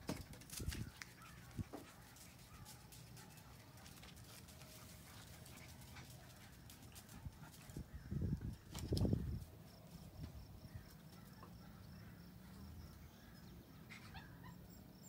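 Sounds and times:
puppy claws clicking on concrete: 0.1 - 7.0.

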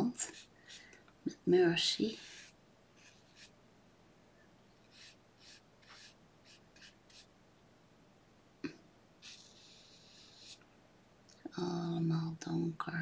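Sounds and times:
brush swishing on paper: 0.0 - 0.8, 1.8 - 3.5, 4.9 - 7.3.

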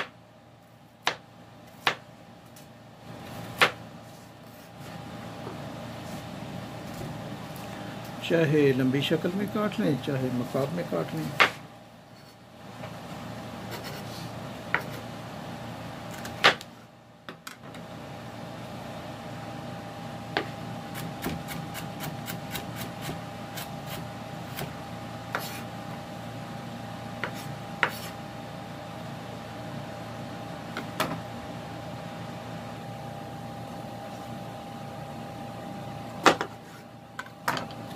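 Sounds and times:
steady hum with high whine: 0.0 - 37.9
knife chopping on wooden board: 1.0 - 2.0, 3.5 - 3.8, 11.4 - 11.6, 14.7 - 15.0, 16.2 - 16.7, 20.3 - 25.7, 27.2 - 28.2, 36.2 - 36.6.

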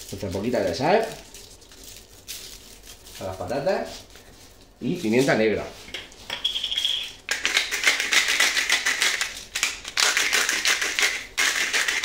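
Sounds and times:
pepper grinder grinding: 6.3 - 12.0.

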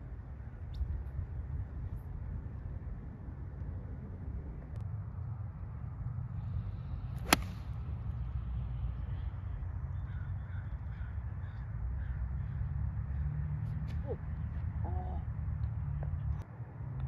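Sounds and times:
golf club striking ball: 7.2 - 7.6.

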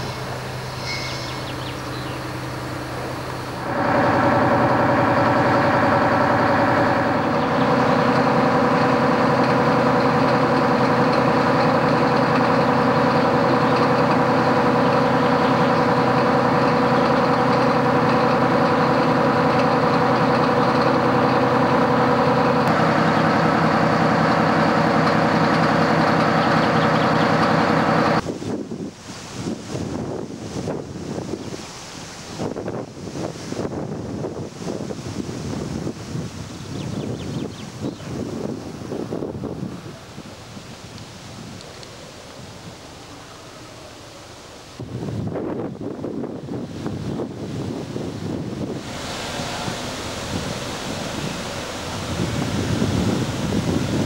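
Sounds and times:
vehicle engine running: 1.5 - 28.2, 46.3 - 54.0.

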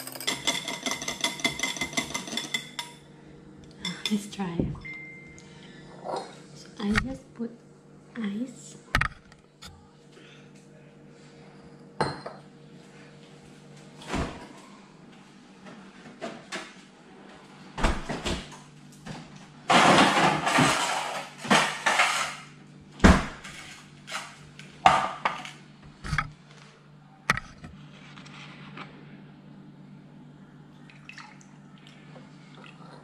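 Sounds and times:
glassware and utensils clinking: 0.0 - 3.0, 12.0 - 12.4.

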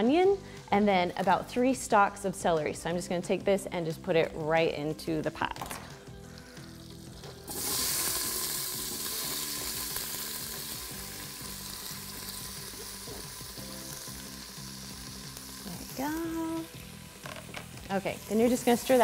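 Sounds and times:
vegetables sizzling in oil: 6.2 - 19.0.

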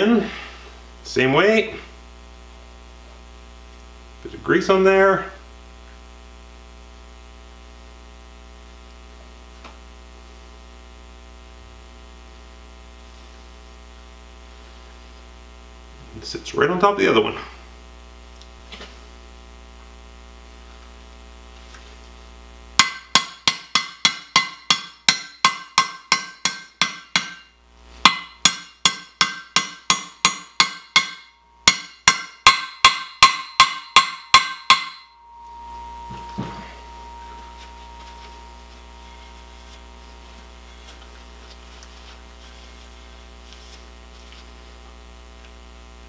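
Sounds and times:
hammer ringing metallic taps: 22.8 - 27.5, 28.1 - 39.5.

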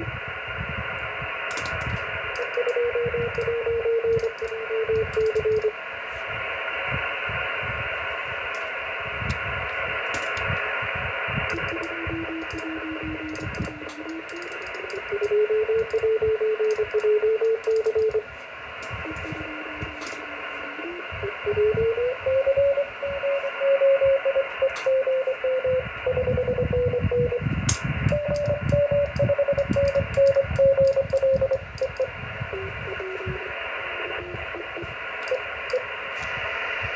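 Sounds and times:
receiver hiss: 0.0 - 36.9
sharp clicks: 1.5 - 5.7, 9.3 - 10.6, 11.5 - 18.2, 19.8 - 21.7, 24.6 - 25.6, 27.6 - 33.2
morse code tone: 2.3 - 5.8, 11.4 - 18.3, 18.9 - 36.9.

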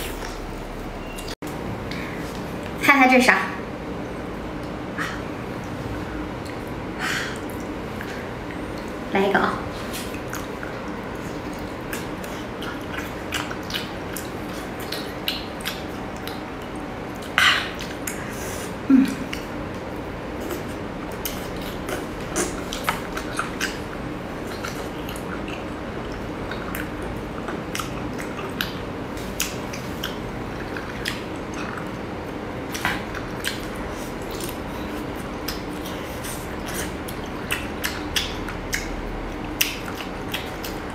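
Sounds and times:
steady low hum: 0.0 - 40.9
wet mouth clicks and smacks: 10.0 - 18.3, 32.7 - 40.9.

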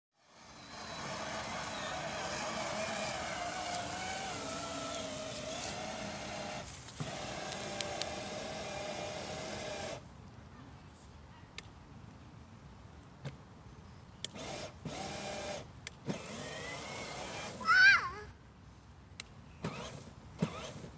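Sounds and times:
toy motorcycle motor whining: 0.2 - 10.0, 14.3 - 18.2, 19.6 - 20.9
dry leaves rustling: 0.4 - 8.2.

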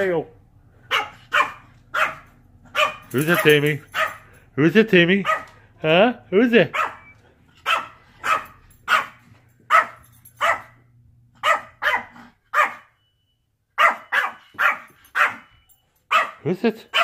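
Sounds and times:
dog barking: 0.9 - 4.3, 5.2 - 5.6, 6.6 - 10.8, 11.4 - 12.9, 13.8 - 17.0.

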